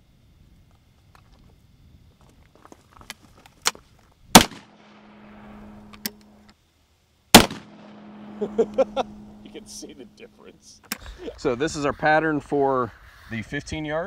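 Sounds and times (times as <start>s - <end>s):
shotgun shots: 4.3s - 6.2s, 7.4s - 9.4s
sharp gun clicks: 4.4s - 5.0s, 7.4s - 8.0s.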